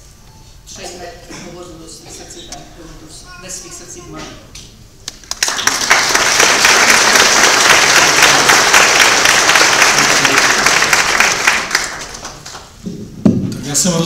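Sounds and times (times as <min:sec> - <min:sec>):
audience applauding: 0:05.1 - 0:12.8.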